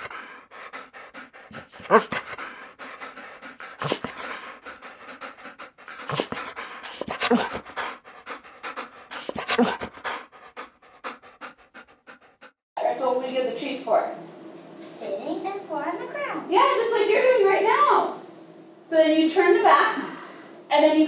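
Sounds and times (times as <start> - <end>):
dog panting: 0.0 - 12.6.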